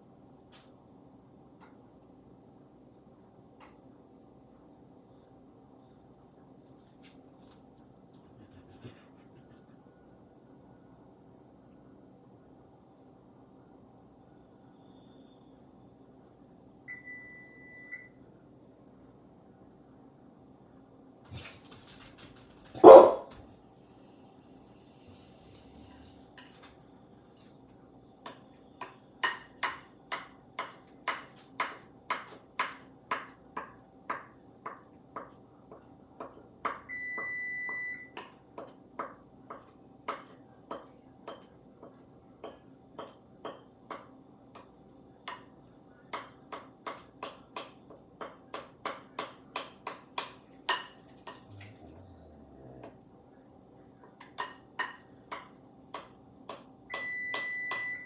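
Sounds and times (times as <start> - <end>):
electronic appliance beep: 16.8 - 18.2, 36.9 - 38.2, 56.9 - 58.0.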